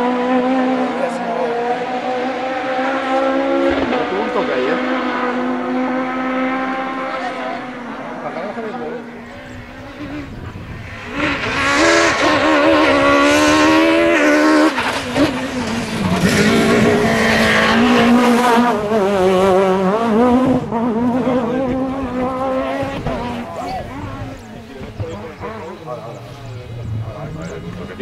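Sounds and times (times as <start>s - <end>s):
rally car engine accelerating: 0.0s - 28.0s.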